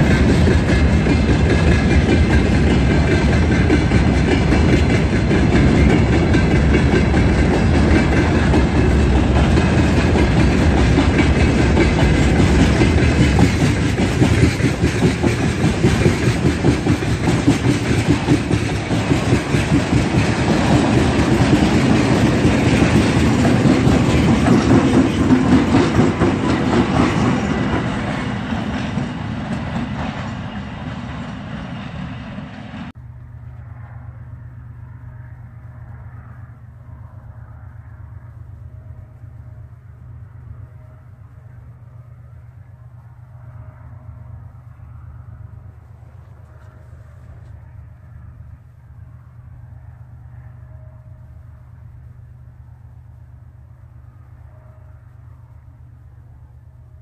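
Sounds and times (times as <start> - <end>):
train wheels clicking over rail joints: 0.0 - 32.9
diesel locomotive engine running: 0.0 - 57.0.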